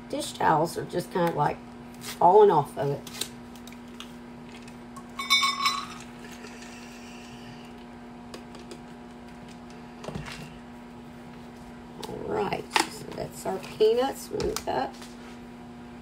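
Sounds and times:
microwave oven humming: 0.0 - 16.0
glass jar clinking: 5.2 - 6.0.

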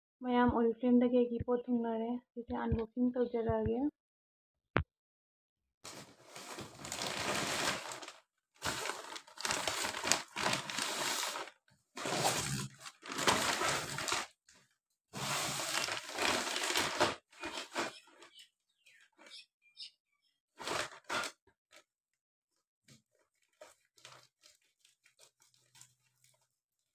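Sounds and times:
plastic bags crinkling and rustling: 5.9 - 18.4, 20.6 - 21.8, 23.1 - 26.9.

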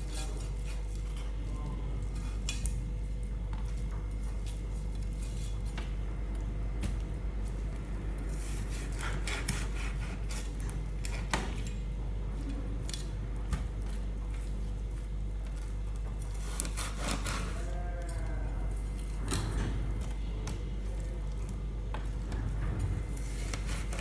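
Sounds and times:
knife scraping and cutting on board: 8.3 - 11.3, 16.3 - 17.6, 23.2 - 24.0.

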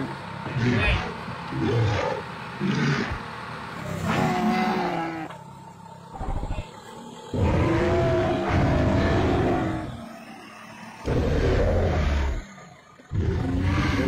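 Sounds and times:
truck engine idling low: 0.0 - 4.1.

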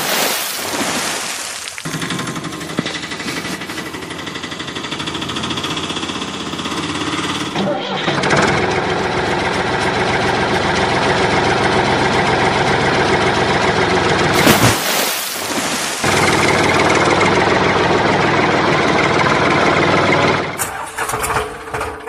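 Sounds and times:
tractor engine running: 1.6 - 14.8, 15.4 - 22.0
small engine running: 1.9 - 14.4.

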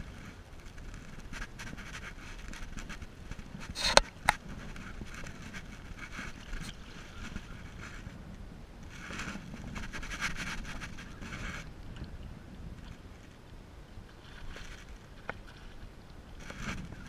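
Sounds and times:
light scraping: 0.0 - 8.2, 8.9 - 11.8
wind: 0.0 - 17.0.

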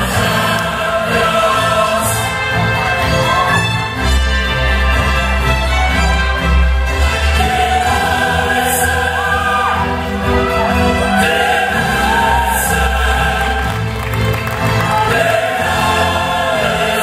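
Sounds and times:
choir singing: 0.0 - 5.0, 6.8 - 17.0.

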